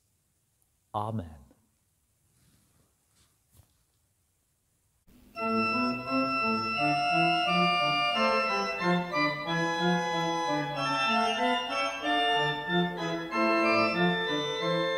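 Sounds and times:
organ music: 5.1 - 14.9.

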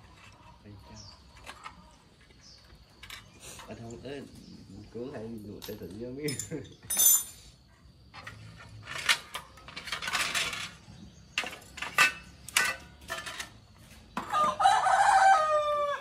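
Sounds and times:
metallic clinks of bicycle wheel: 5.4 - 7.4
rooster crowing: 14.2 - 16.0.

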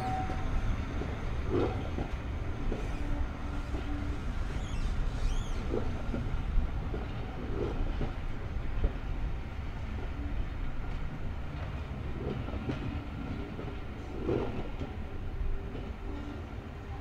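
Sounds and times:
train rumbling on rails: 0.0 - 17.0.

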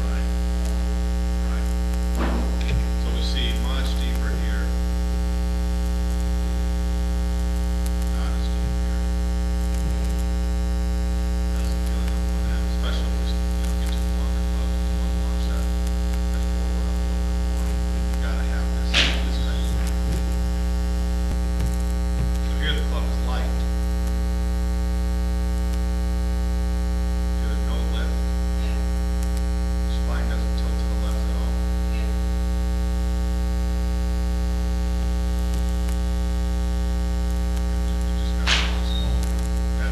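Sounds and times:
electrical mains hum: 0.0 - 39.9
sharp click: 38.4 - 39.5.

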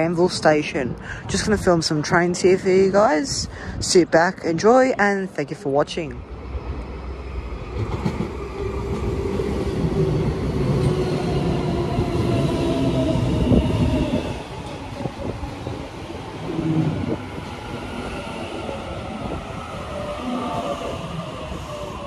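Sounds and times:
train wheels rumbling on rails: 6.2 - 22.0.

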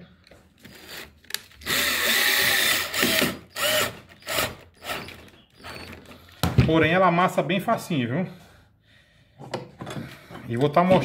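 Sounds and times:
cordless drill driving screw: 0.6 - 6.1.

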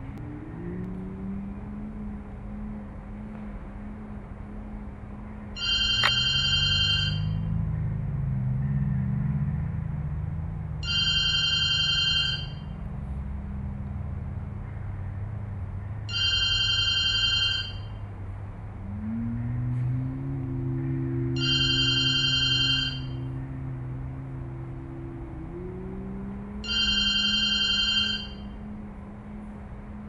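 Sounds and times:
steady low hum: 0.0 - 30.0
telephone ringing: 5.6 - 7.5, 10.8 - 12.7, 16.1 - 18.0, 21.4 - 23.2, 26.6 - 28.5.

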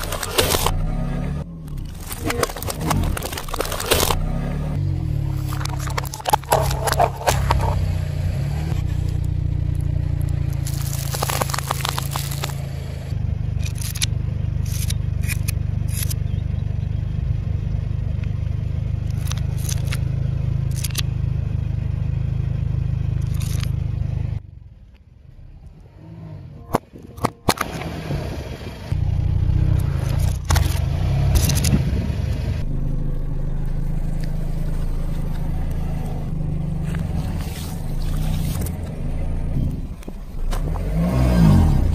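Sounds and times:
tyre crushing plastic cups: 0.0 - 0.7, 2.0 - 4.2, 5.4 - 7.8, 10.5 - 12.6
car engine idling: 0.0 - 41.9.

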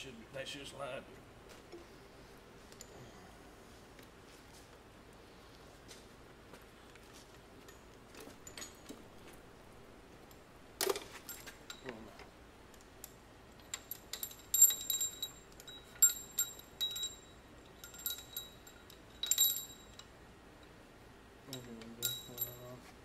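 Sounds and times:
metal pushrods clinking: 13.0 - 20.1, 21.5 - 22.8.

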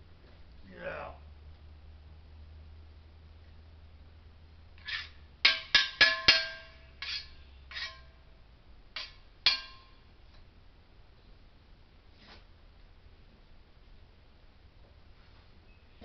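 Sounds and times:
sharp knocks with ringing tone: 5.5 - 7.0.

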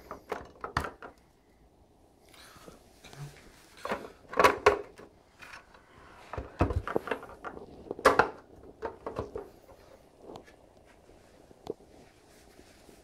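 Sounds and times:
plastic clicks and knocks: 0.0 - 1.2, 6.3 - 9.5.

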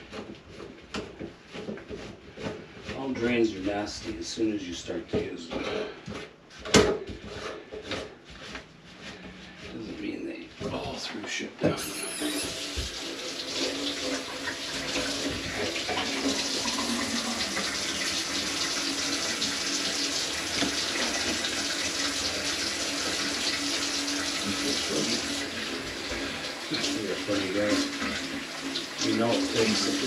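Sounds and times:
faucet water running into sink: 11.8 - 30.0.

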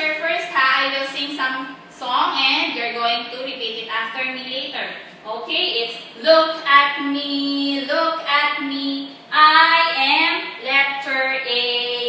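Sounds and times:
woman singing children's song: 5.6 - 12.0.

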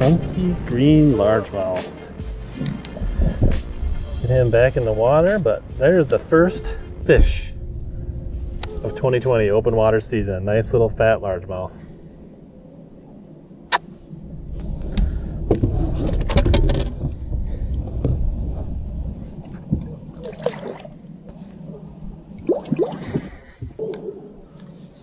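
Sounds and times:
knocks and handling rumble: 0.0 - 11.9, 14.1 - 25.0
water sloshing and splashing: 14.6 - 23.8.

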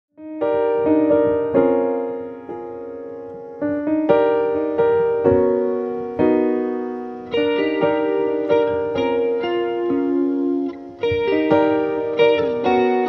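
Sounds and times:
piano chords: 0.1 - 13.0.

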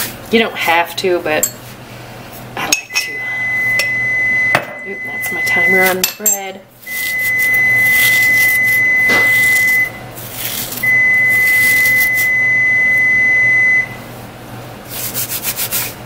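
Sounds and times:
kitchen timer beeping: 2.9 - 6.0, 6.9 - 10.0, 10.8 - 14.0.

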